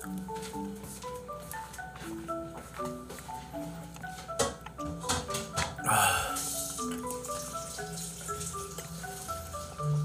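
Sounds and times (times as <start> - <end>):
person sipping through a straw: 5.8 - 7.1.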